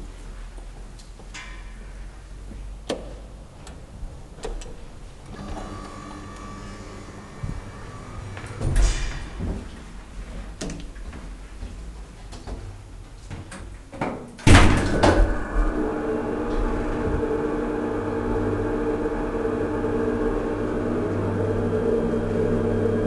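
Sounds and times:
hydraulic elevator drive humming: 4.4 - 9.6
elevator doors shutting with a knock: 4.4 - 9.7, 14.0 - 17.4.

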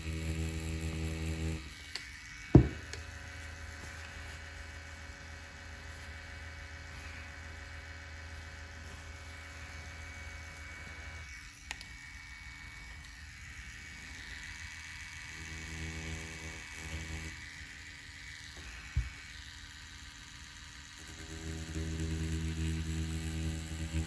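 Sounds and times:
tattoo machine humming: 0.0 - 24.0
short thump: 2.6 - 2.9.

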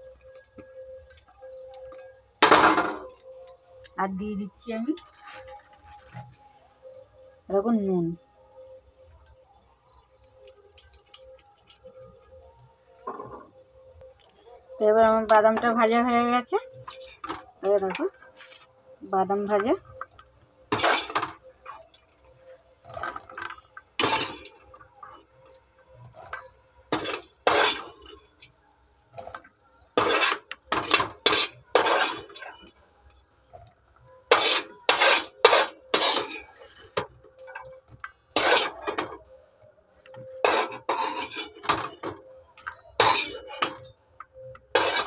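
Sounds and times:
metal spoon scraping a pan: 20.7 - 21.9, 22.9 - 24.7, 26.1 - 28.2, 30.0 - 32.7, 34.3 - 39.2, 40.4 - 43.9, 44.6 - 45.0.

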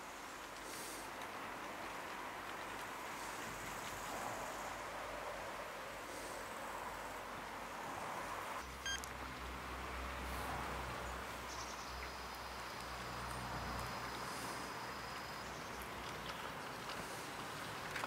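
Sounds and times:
steady hiss: 0.0 - 8.7.

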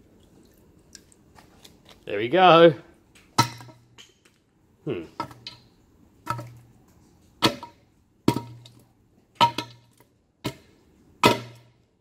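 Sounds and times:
wooden batten striking battery pack: 7.4 - 8.8, 9.4 - 11.8.

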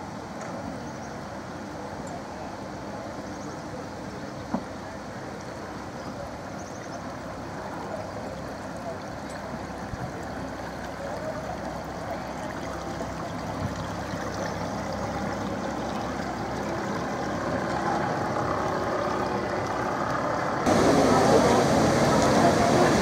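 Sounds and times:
water washing along hull: 0.0 - 23.0
boat engine running: 4.5 - 23.0.

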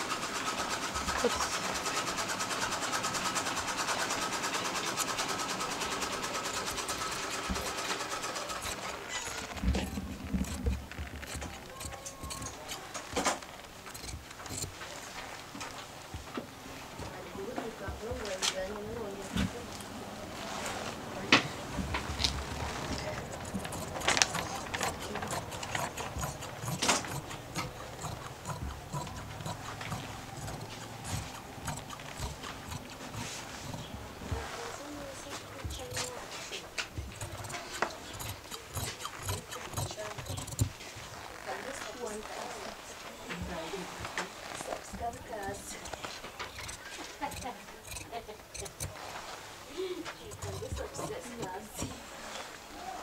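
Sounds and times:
sewing machine clatter: 0.0 - 16.3, 20.5 - 49.4, 50.1 - 52.5
scissors snipping fabric: 3.2 - 14.9, 22.0 - 40.8, 44.5 - 49.0, 50.1 - 52.0.

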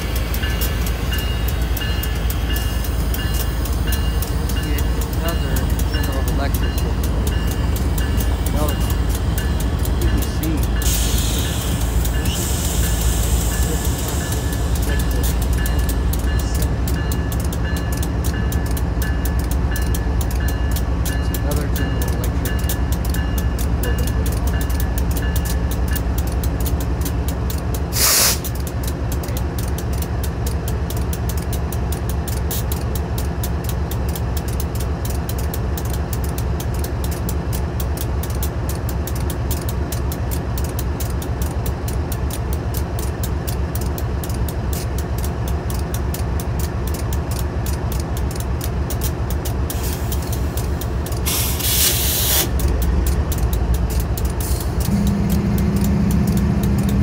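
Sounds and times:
diesel locomotive engine idling: 0.0 - 57.0
compressed air blasts: 27.9 - 28.5, 51.2 - 52.5.

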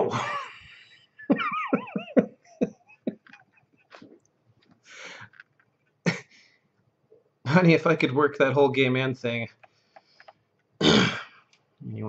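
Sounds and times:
man laughing: 0.0 - 4.2.

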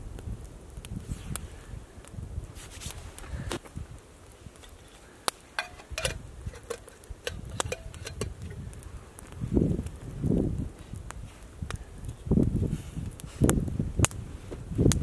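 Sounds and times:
metal cookware clicks and clinks: 5.6 - 8.6.

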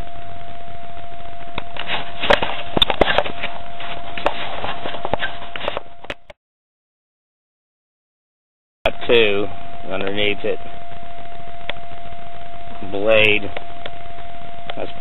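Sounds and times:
faint steady tone: 8.9 - 15.0.

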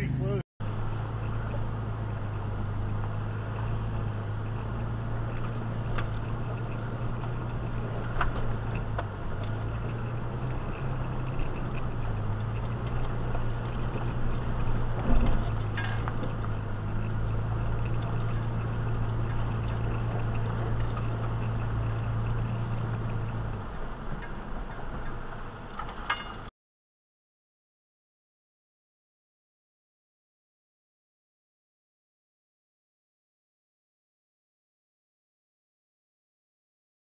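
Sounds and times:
low engine drone: 0.0 - 26.5
vehicle clinks and knocks: 0.6 - 26.5.

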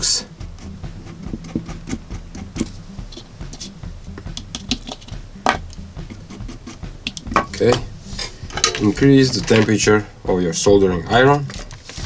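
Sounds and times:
low steady hum: 0.0 - 12.0
brush clicks and scratches on metal: 0.3 - 3.8, 6.0 - 7.3.

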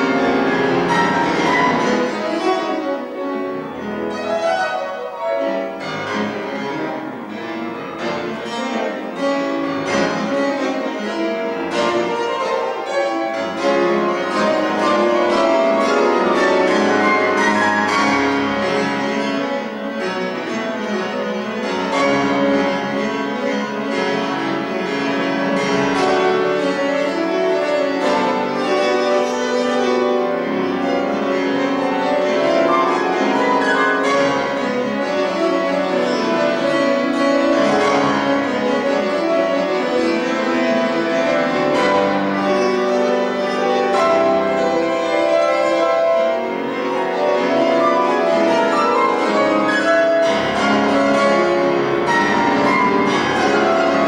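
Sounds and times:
solo classical piano: 0.0 - 54.0.

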